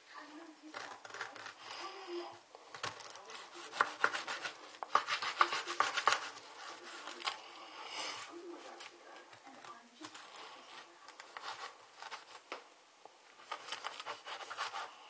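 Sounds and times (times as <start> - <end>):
knife sawing through pineapple: 3.2 - 7.2, 13.4 - 15.0.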